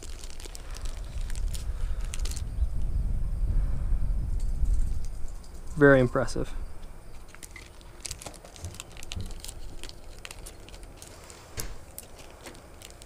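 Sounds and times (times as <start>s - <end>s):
plastic bags clicking and crinkling: 0.0s - 2.5s, 7.1s - 13.0s.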